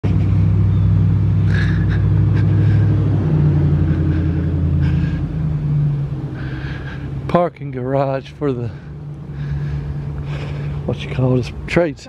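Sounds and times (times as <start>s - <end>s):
mechanical engine drone: 0.0s - 11.7s.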